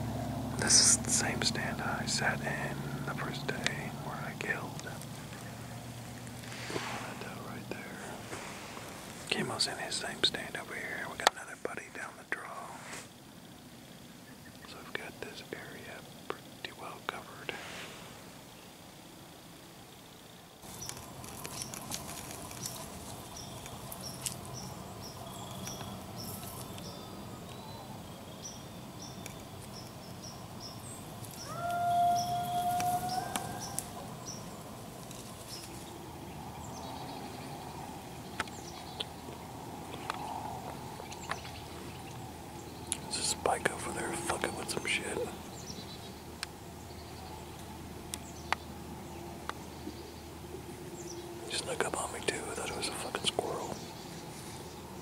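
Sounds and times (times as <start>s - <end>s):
cricket chirping: 0.1s - 55.0s
faint hiss: 0.5s - 24.6s
light crackles: 0.6s - 13.2s, 20.6s - 27.6s, 30.7s - 31.8s, 32.5s - 45.4s.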